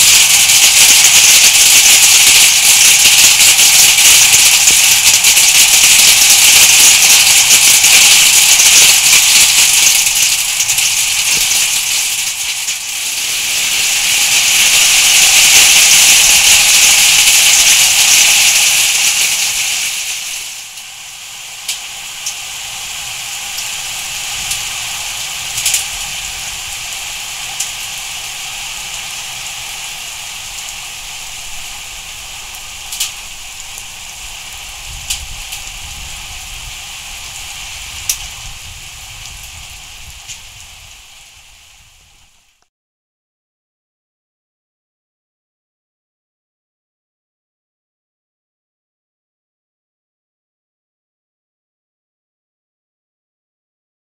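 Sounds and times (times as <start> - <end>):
heavy rain and hail: 0.0 - 42.6.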